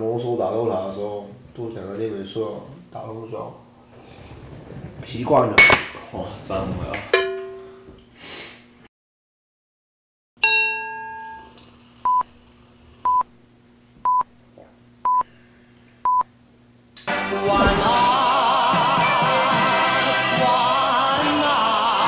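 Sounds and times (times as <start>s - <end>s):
electronic countdown beeps: 14.1s - 14.3s, 15.0s - 15.3s, 16.0s - 16.3s
music: 17.0s - 22.0s
burst of effect sound: 17.4s - 18.9s.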